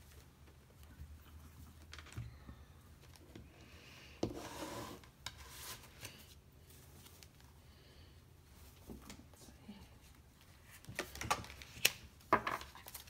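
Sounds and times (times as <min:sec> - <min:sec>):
cards sliding and rubbing: 0:04.3 - 0:06.3.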